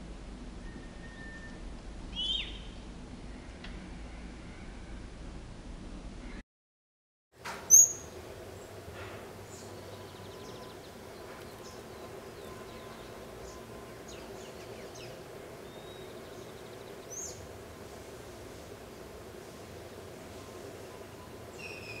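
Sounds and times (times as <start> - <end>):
low background hum: 0.0 - 6.4, 7.5 - 22.0
bird trills: 0.6 - 2.7, 7.7 - 8.1, 21.2 - 22.0
birds calling: 0.7 - 3.5, 7.7 - 17.6, 20.7 - 22.0.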